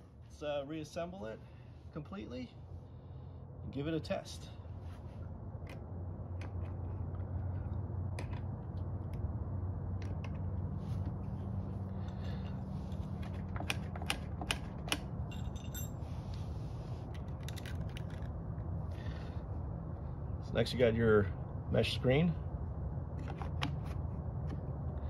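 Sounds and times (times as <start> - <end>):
steady low hum: 0.0 - 25.0
clicks and knocks of parts: 5.6 - 9.3, 9.9 - 11.2, 12.0 - 16.0, 17.1 - 18.7.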